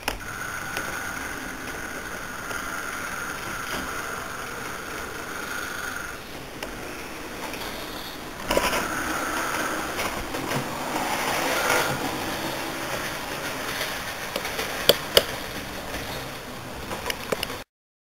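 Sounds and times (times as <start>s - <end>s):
sharp clicks: 0.0s - 10.7s, 12.9s - 16.2s, 16.8s - 17.6s
model train rumble: 0.0s - 17.6s.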